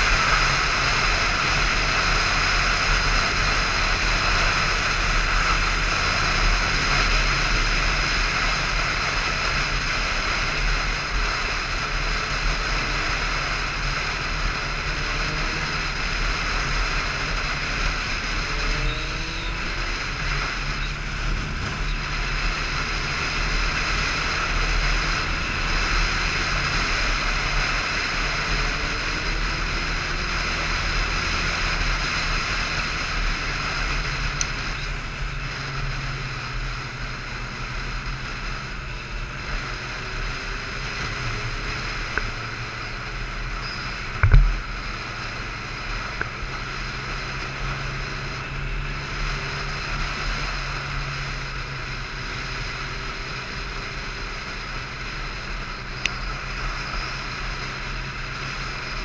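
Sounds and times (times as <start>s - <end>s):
motorcycle engine cruising: 0.0s - 59.0s.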